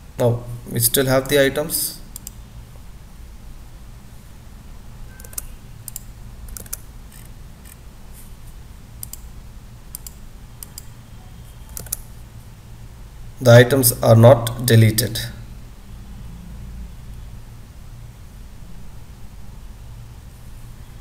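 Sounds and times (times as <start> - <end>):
computer mouse clicking: 2.1 - 2.4, 5.2 - 7.8, 9.0 - 9.3, 9.9 - 10.9, 11.7 - 12.0.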